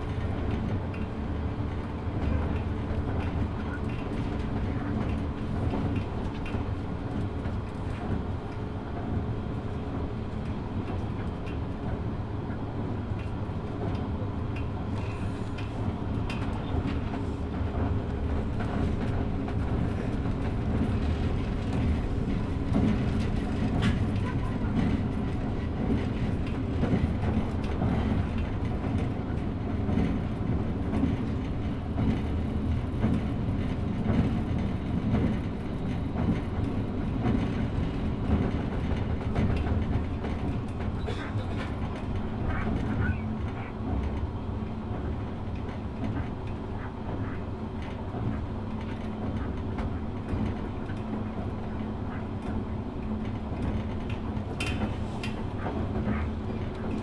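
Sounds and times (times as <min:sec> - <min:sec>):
train wheels and motors rumbling: 0:00.0 - 0:57.0
clicks over rail joints: 0:45.0 - 0:57.0.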